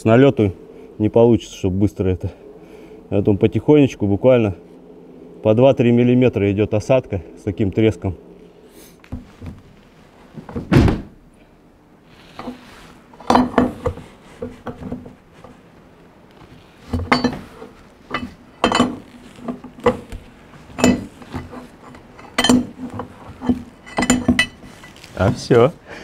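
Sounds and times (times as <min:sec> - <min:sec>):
wrench clinking on metal jack: 0:18.1 - 0:19.0, 0:22.2 - 0:24.7.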